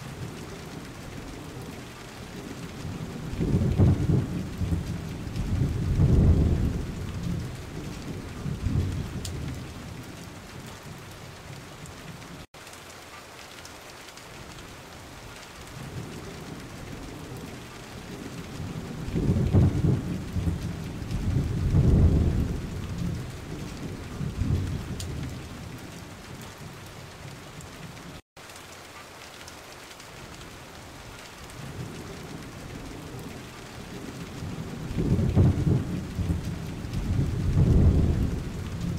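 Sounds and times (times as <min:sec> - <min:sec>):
steady rain hiss: 0:00.0 - 0:38.9
rolling thunder: 0:00.2 - 0:11.0, 0:15.8 - 0:26.8, 0:31.6 - 0:38.9.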